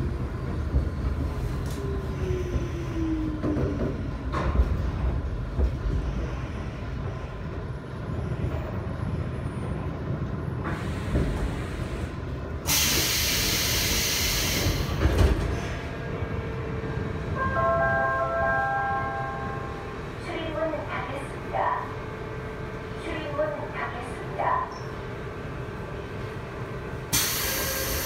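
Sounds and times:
train running rumble: 0:00.0 - 0:28.0
compressed air hiss: 0:12.7 - 0:15.0, 0:27.1 - 0:28.0
train doors knocking open: 0:14.0 - 0:15.7.

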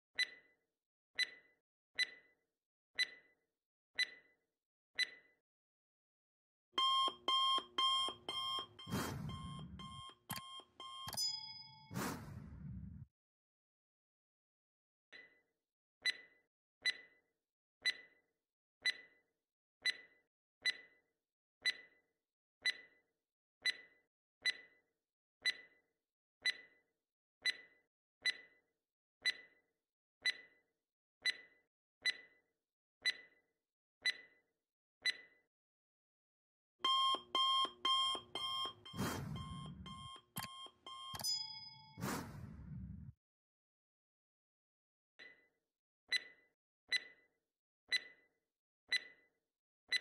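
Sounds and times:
alarm clock bell ringing: 0:06.8 - 0:12.0, 0:36.8 - 0:42.0
timer ticking: 0:06.8 - 0:12.7, 0:16.0 - 0:17.1, 0:17.8 - 0:18.1, 0:18.8 - 0:19.1, 0:19.8 - 0:20.9, 0:21.6 - 0:21.9, 0:22.6 - 0:22.9, 0:23.6 - 0:24.7, 0:25.4 - 0:25.7, 0:26.4 - 0:26.7, 0:27.4 - 0:28.5, 0:29.2 - 0:29.5, 0:30.2 - 0:30.5, 0:31.2 - 0:32.3, 0:33.0 - 0:33.3, 0:34.0 - 0:34.3, 0:36.8 - 0:43.1, 0:47.9 - 0:48.2, 0:48.9 - 0:49.1
brief chime: 0:08.4 - 0:12.5, 0:38.4 - 0:42.6.

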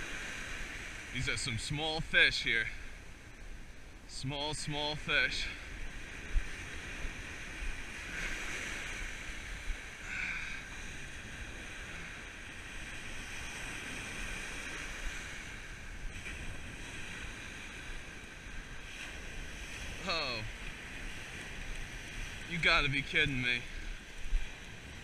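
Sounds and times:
surf washing over sand: 0:00.0 - 0:25.0
wind rumbling on microphone: 0:02.7 - 0:25.0.

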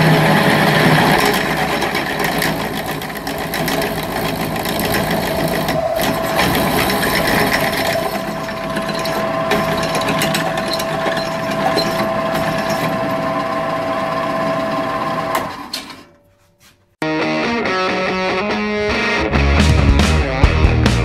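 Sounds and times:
bit scraping metal: 0:00.0 - 0:13.4
drill press motor whine: 0:00.0 - 0:16.0.

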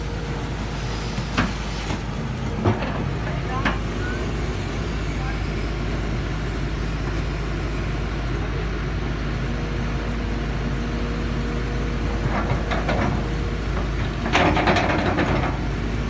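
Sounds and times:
excavator diesel engine rumble: 0:00.0 - 0:16.0.

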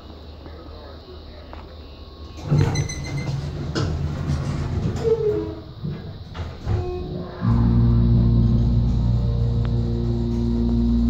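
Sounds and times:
elevator machinery humming: 0:00.0 - 0:11.0
elevator doors sliding shut: 0:02.3 - 0:11.0.

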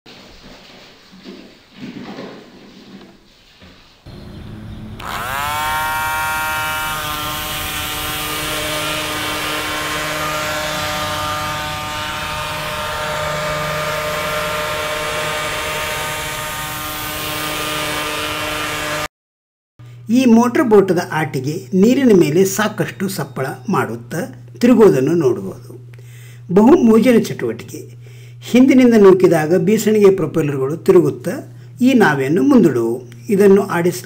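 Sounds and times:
toy motor whining: 0:05.0 - 0:19.1.

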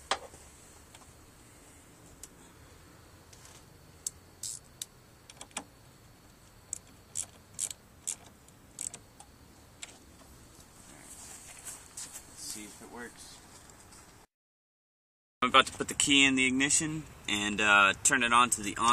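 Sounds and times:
metallic clicks and scrapes: 0:06.7 - 0:10.0.

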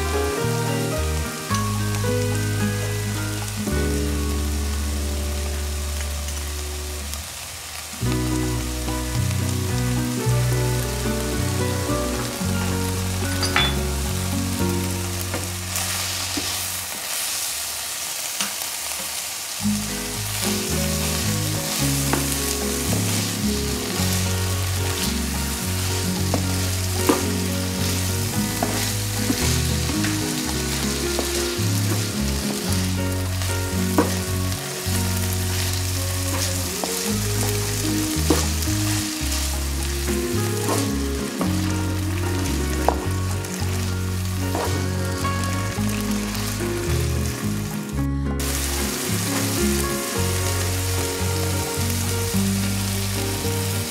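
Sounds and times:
background music with low notes: 0:00.0 - 0:07.3, 0:08.0 - 0:16.7, 0:19.6 - 0:53.9
meat sizzling in a pan: 0:00.0 - 0:47.8, 0:48.4 - 0:53.9
wooden spatula scraping and knocking: 0:26.2 - 0:32.9, 0:33.9 - 0:34.2, 0:35.2 - 0:41.6, 0:44.5 - 0:44.9.

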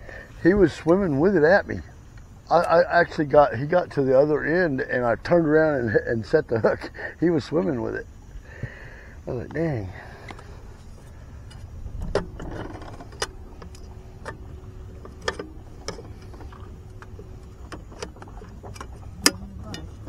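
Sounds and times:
faint steady hum: 0:00.0 - 0:20.0
low steady rumble: 0:00.0 - 0:20.0
fishing gear clicking and knocking: 0:11.4 - 0:20.0.

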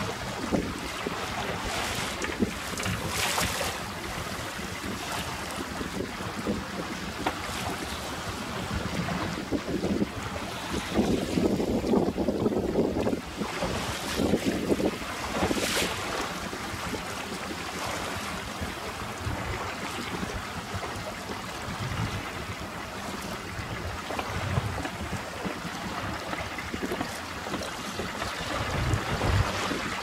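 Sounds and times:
choppy water splashing: 0:00.0 - 0:30.0
outboard motor running: 0:00.0 - 0:30.0
wind gusting on microphone: 0:00.0 - 0:30.0.

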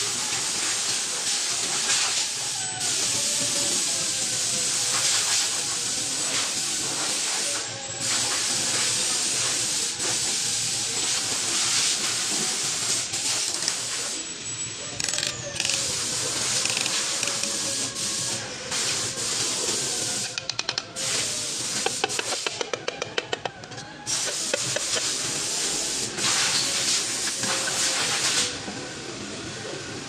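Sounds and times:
ratchet wrench clicks: 0:13.4 - 0:13.8, 0:15.0 - 0:17.6, 0:20.2 - 0:20.9.

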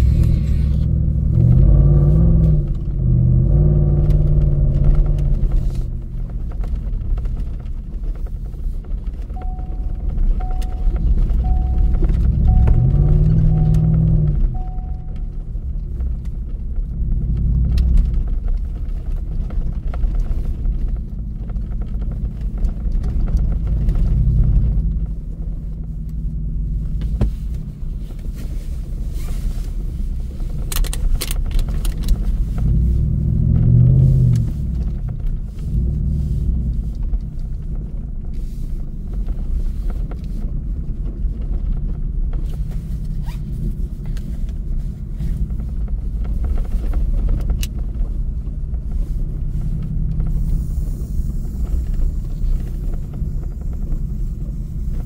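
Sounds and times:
truck engine rumbling: 0:00.0 - 0:55.0
clicks and rattles: 0:30.6 - 0:32.6.

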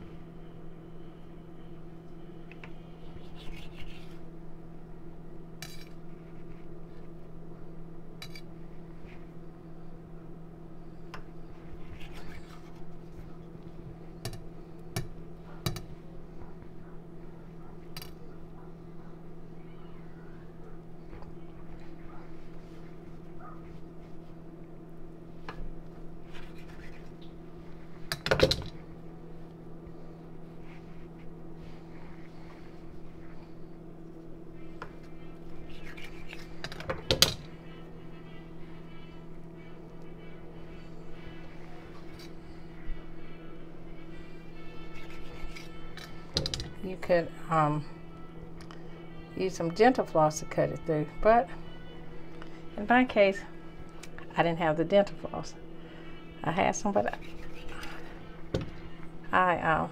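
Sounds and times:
steady low hum: 0:00.0 - 0:59.9
knife cutting dough: 0:44.9 - 0:46.2, 0:57.0 - 0:58.2.

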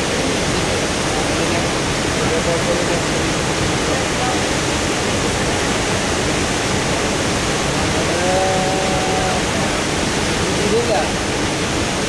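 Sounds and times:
faint voice: 0:00.0 - 0:06.1, 0:07.7 - 0:11.2
waterfall rushing: 0:00.0 - 0:12.0.

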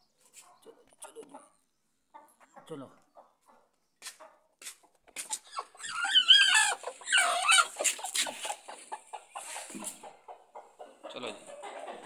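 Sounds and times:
chicken squawking: 0:05.2 - 0:12.0.

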